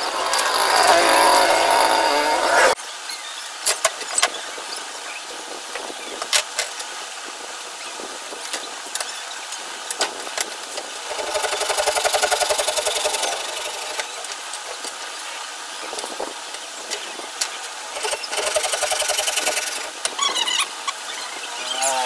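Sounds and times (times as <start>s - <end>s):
motor buzzing: 0.0s - 2.8s, 11.1s - 14.2s, 17.9s - 22.0s.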